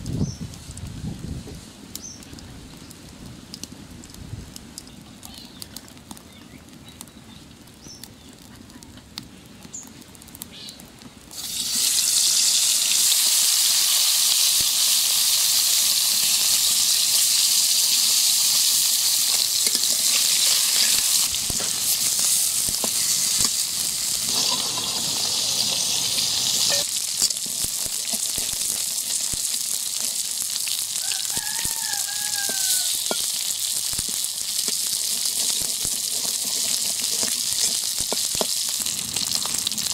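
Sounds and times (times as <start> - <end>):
fish sizzling in hot oil: 11.3 - 39.9
metal spatula scraping a pan: 19.3 - 23.6, 24.3 - 25.0, 34.7 - 38.3.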